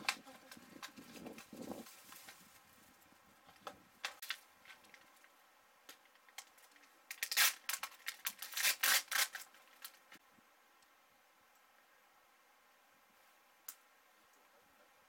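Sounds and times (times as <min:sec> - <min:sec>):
plastic packaging crinkling and tearing: 0:06.2 - 0:10.1.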